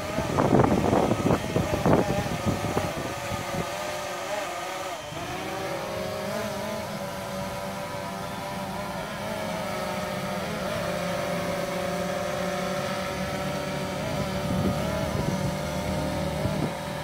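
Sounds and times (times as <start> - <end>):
wind buffeting microphone: 0.0 - 4.1, 13.5 - 17.0
drone motors whining: 0.0 - 17.0.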